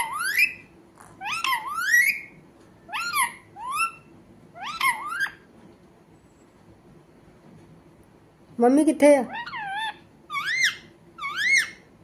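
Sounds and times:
parakeet speaking: 8.8s - 11.8s.

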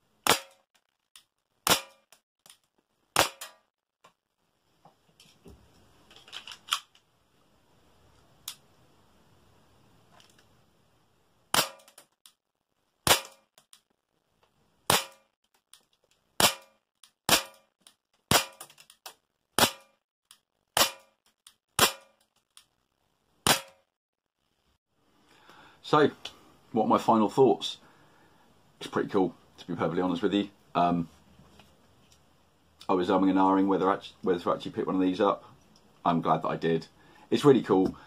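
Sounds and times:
airsoft pistol shots: 0.2s - 0.6s, 1.6s - 2.1s, 3.2s - 3.6s, 11.5s - 12.0s, 13.0s - 13.4s, 14.9s - 15.3s, 16.4s - 17.7s, 18.3s - 18.6s, 19.6s - 19.9s, 20.8s - 21.1s, 21.8s - 22.1s, 23.4s - 23.8s.

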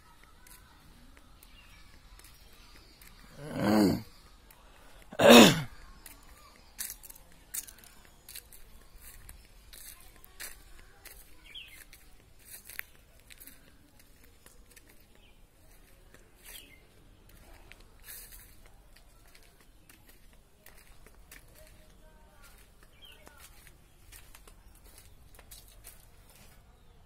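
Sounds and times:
footsteps crunching on dry leaves: 5.8s - 26.6s.

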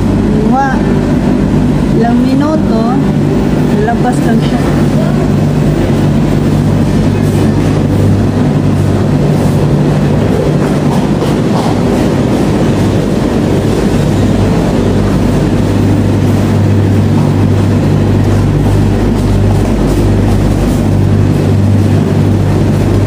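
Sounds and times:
washing machines and dryers running: 0.0s - 23.0s.

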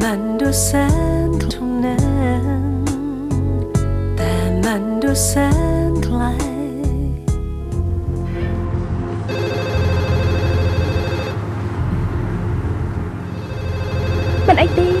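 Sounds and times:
electronic ringing tone: 9.3s - 11.4s, 13.4s - 15.0s.

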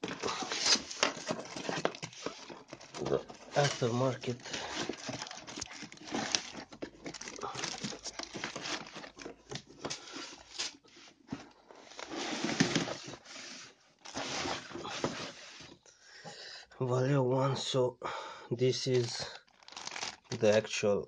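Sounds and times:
plastic wrapping crinkling: 0.0s - 10.8s, 18.8s - 20.8s
cardboard box rustling: 0.0s - 15.8s, 19.0s - 20.6s.

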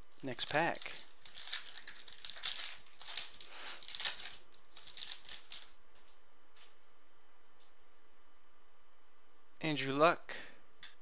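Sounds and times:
foil wrapper crinkling: 0.2s - 6.7s.

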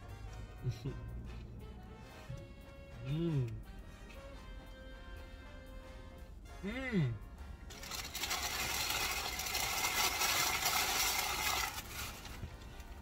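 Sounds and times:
paper wrapper crinkling: 7.7s - 13.0s.

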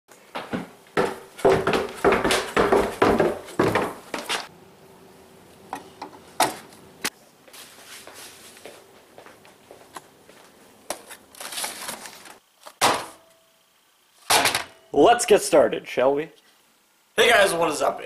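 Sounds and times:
footsteps going down stairs: 0.1s - 4.5s, 7.5s - 11.1s
faint steady hum: 0.1s - 18.0s.

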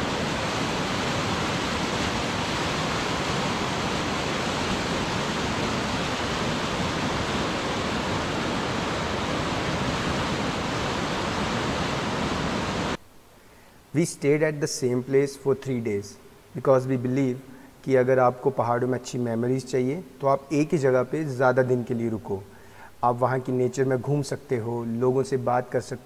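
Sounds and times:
water rushing over rocks: 0.0s - 13.0s.

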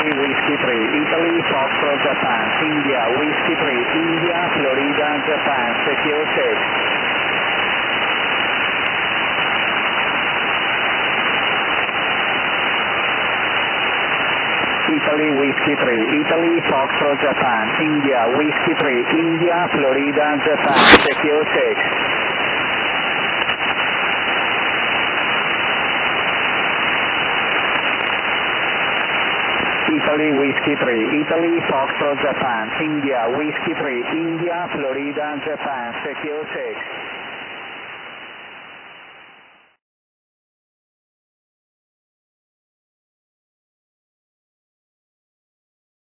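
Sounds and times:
radio receiver hiss: 0.0s - 10.1s, 14.0s - 39.6s.

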